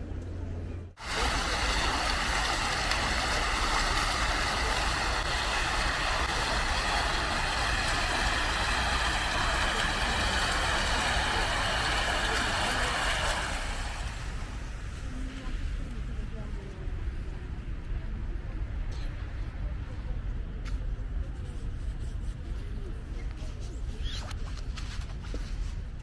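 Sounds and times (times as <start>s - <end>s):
fountain water splashing into pool: 1.0s - 14.9s.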